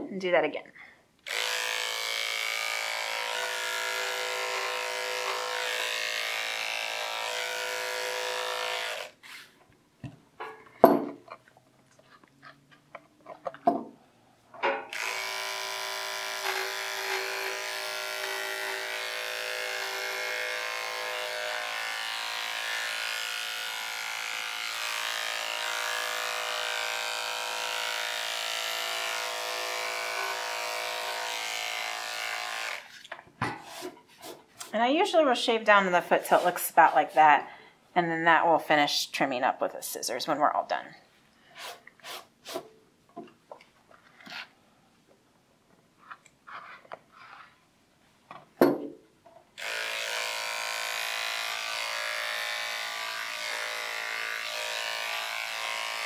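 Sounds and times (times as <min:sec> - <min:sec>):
electric dog clippers running: 0:01.2 - 0:09.2, 0:14.9 - 0:33.0, 0:49.6 - 0:56.0
slicker brush strokes: 0:36.0 - 0:37.3.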